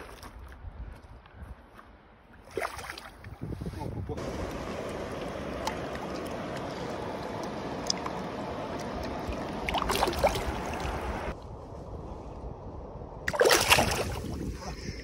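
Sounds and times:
water splashing: 2.4 - 3.4, 4.2 - 11.4, 13.3 - 14.7
river water flowing over stones: 4.2 - 11.4.

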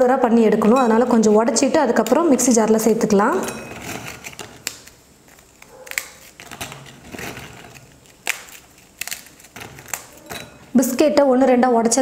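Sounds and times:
biscuit wafers snapping: 4.0 - 10.5.

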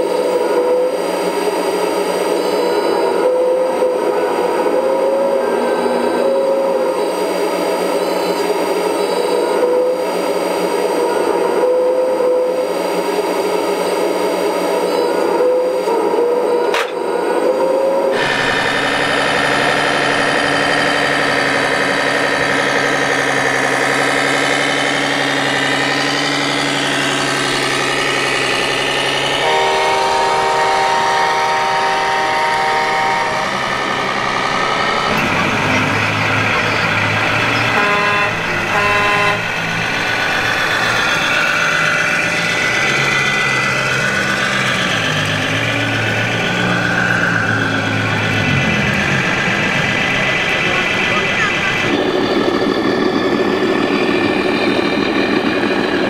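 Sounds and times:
simulated diesel engine: 0.0 - 56.0
air horn blast: 2.6 - 6.9, 25.5 - 35.2, 37.7 - 39.6
short horn toots: 29.3 - 34.0, 37.7 - 39.5.

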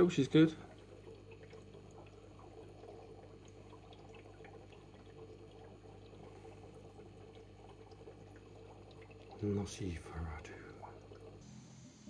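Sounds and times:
small water drips: 0.0 - 11.5
aquarium water trickling: 0.0 - 12.0
low equipment hum: 0.0 - 12.0.

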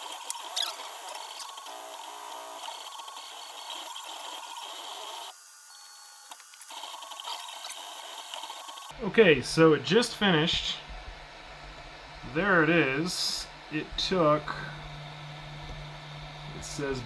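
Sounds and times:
stepper motor chirps and squeaks: 0.0 - 6.0, 6.6 - 8.9
steady motor whine: 0.0 - 8.9, 9.6 - 17.0.

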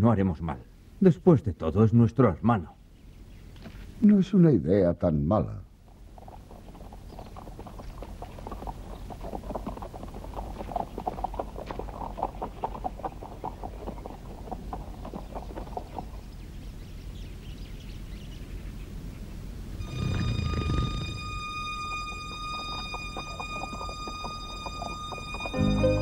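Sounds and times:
hoofbeats of pack animals: 5.9 - 17.0, 19.8 - 26.0.

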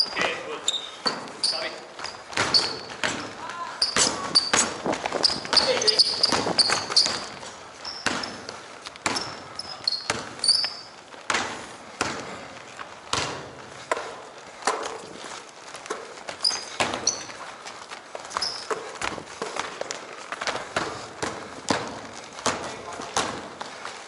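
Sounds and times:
sneaker squeaks: 0.0 - 12.5, 13.1 - 23.8
basketball bouncing on wooden floor: 2.0 - 12.3, 13.1 - 15.0, 16.4 - 17.4, 20.4 - 23.6.

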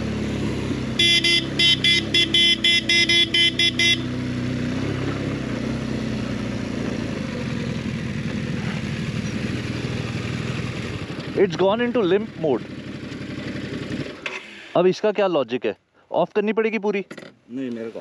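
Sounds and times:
motorcycle engine low revving: 0.0 - 14.7
motorcycle horn tooting: 0.9 - 4.3.

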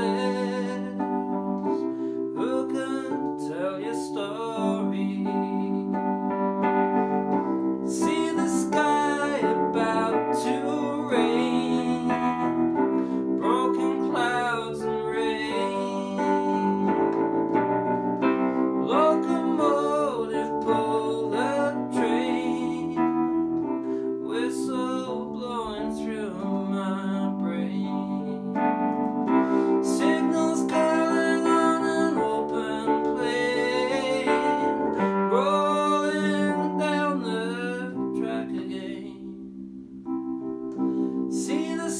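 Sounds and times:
man humming wordless melody: 0.0 - 39.4, 40.7 - 41.9
electric piano chords: 0.0 - 41.9.

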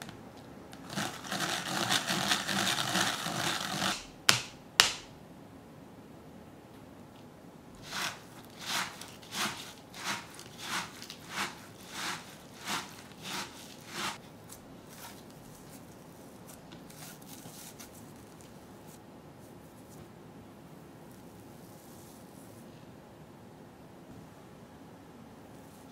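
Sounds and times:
dough mixing sounds: 0.7 - 4.2, 7.8 - 19.0
fingers rubbing flour in bowl: 0.8 - 4.1, 7.8 - 19.0.

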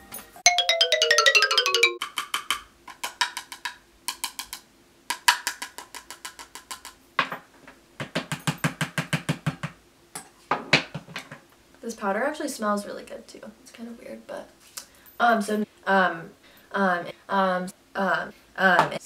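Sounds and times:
chime-like notes: 0.5 - 2.0.

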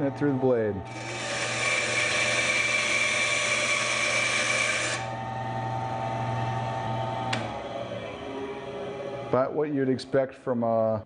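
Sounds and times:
bandsaw motor hum: 0.0 - 9.4
bandsaw cutting plywood: 0.9 - 5.1.

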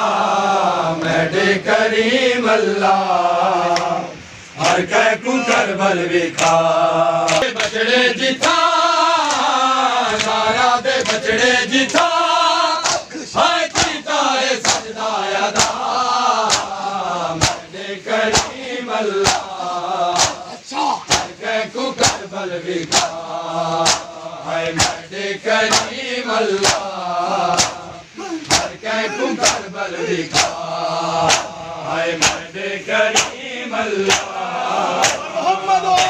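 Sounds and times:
men chanting together: 0.0 - 36.0
sharp percussive beat: 21.1 - 21.4, 24.8 - 25.0, 25.7 - 26.0, 26.6 - 26.9, 30.3 - 30.6, 31.2 - 31.5, 32.2 - 32.5, 34.1 - 34.3.

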